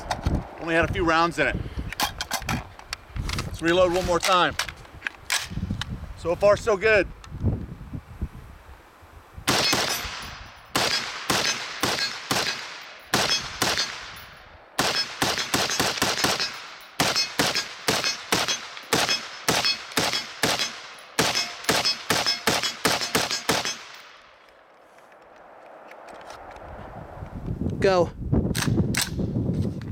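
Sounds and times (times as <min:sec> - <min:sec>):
rifle shots echoing: 0:09.5 - 0:24.4.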